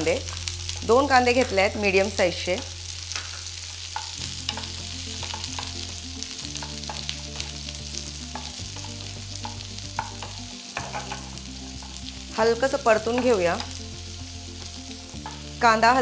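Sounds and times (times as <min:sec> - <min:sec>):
onions sizzling in a pan: 0:00.0 - 0:16.0
spatula scraping a pan: 0:03.4 - 0:05.9, 0:06.5 - 0:12.2.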